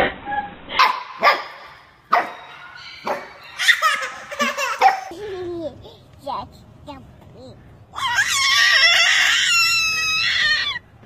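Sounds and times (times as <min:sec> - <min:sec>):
puppy barking: 0:00.8 - 0:05.1.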